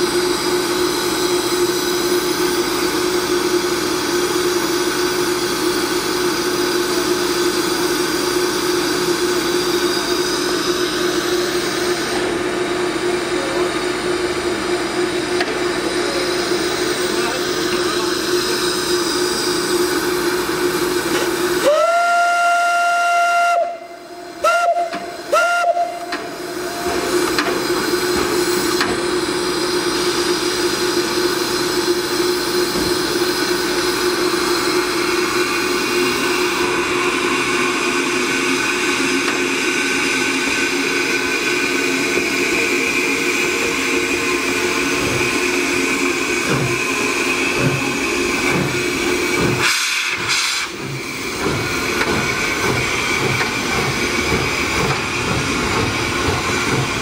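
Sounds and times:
steam hissing: 0.0s - 13.6s, 14.8s - 57.0s
steam locomotive whistle: 21.6s - 27.4s, 49.6s - 50.8s.

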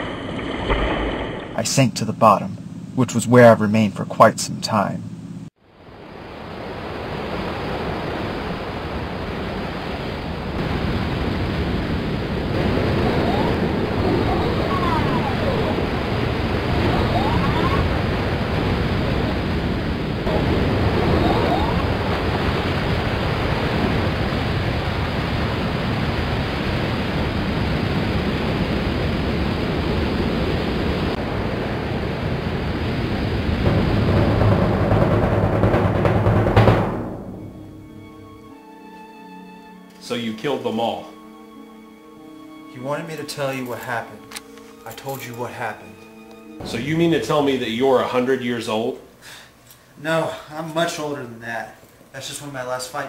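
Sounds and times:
ocean waves and surf: 0.0s - 1.6s, 5.6s - 38.3s.

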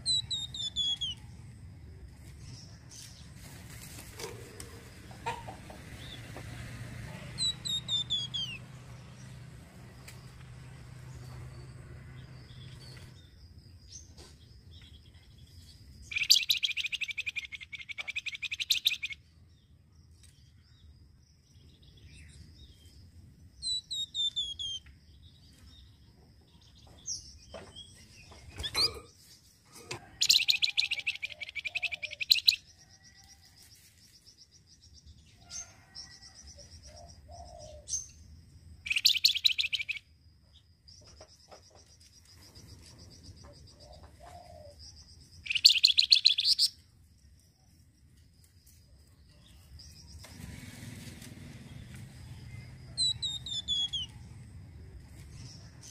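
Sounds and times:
songbird buzzy rattling trill: 16.0s - 19.2s, 38.8s - 40.1s, 45.3s - 46.8s.

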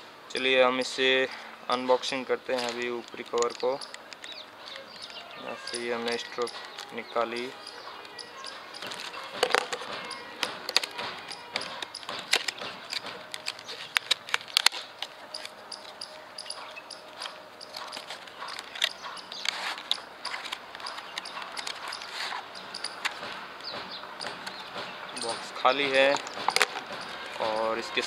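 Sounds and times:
packaging rustling and crackling: 2.0s - 16.0s, 16.6s - 23.4s
tape pulled from cardboard: 19.5s - 20.5s.

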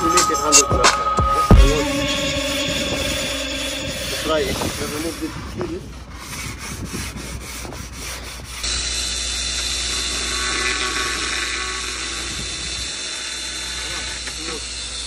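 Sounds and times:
power tool grinding tile: 1.8s - 15.0s.

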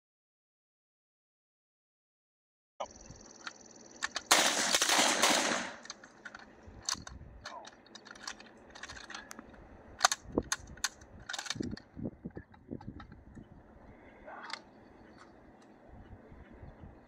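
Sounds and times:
suppressed submachine gun burst: 4.0s - 6.0s
metallic clicks and clacks: 10.0s - 11.9s.

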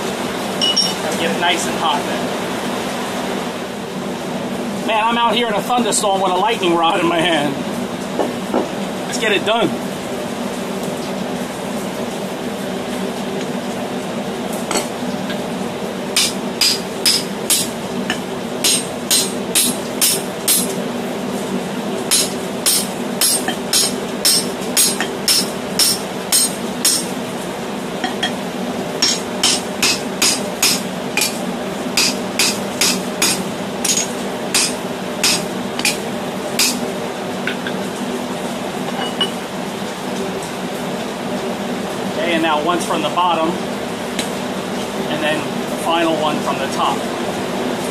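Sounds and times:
hammer striking steel drift: 16.2s - 20.7s, 22.1s - 27.1s, 29.0s - 31.4s, 32.0s - 36.0s, 36.6s - 36.8s.

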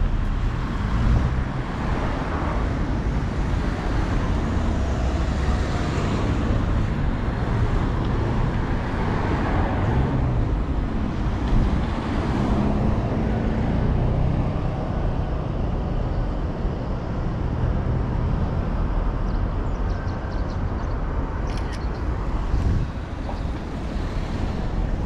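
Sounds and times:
car engines running: 20.6s - 25.0s.

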